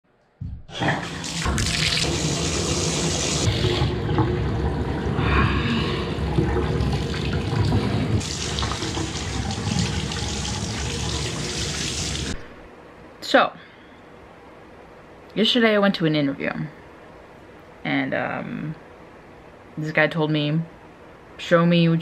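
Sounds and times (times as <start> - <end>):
water running onto head: 0.8 - 12.4.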